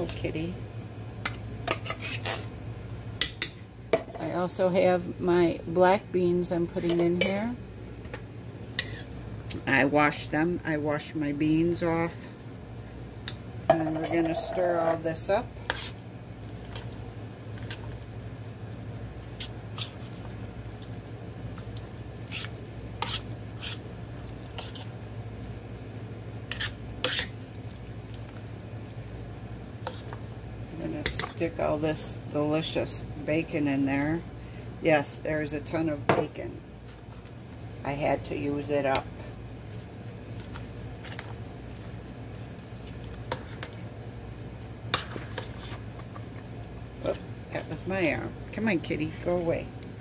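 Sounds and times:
steady low hum: 0.0 - 50.0
utensil scraping pot: 1.7 - 2.5, 8.8 - 9.1, 13.7 - 16.0, 19.4 - 20.4, 22.2 - 23.9, 24.5 - 25.0, 26.5 - 27.4, 29.8 - 30.2, 43.2 - 43.8, 44.9 - 46.2.

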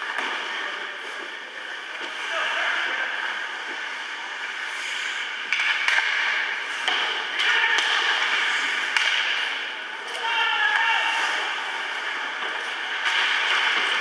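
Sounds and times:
hockey sticks and puck clacking: 0.0 - 14.0
ice rink noise: 0.0 - 14.0.

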